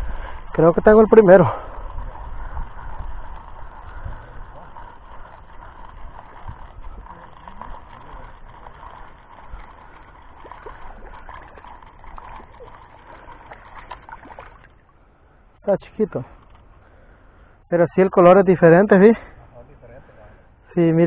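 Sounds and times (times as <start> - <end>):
wind rumble on microphone: 0.0 - 12.8
fishing reel clicks: 0.2 - 14.7.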